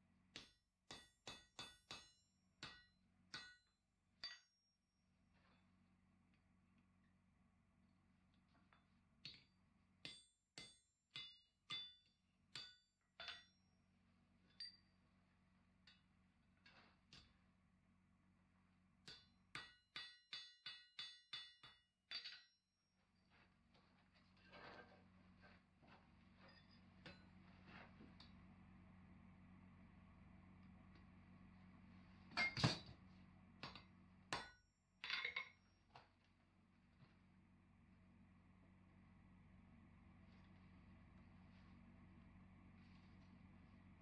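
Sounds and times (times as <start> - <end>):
hammer striking metal on anvil: 0.3 - 4.6, 10.0 - 13.6, 19.0 - 22.6, 32.4 - 32.9, 33.6 - 35.6.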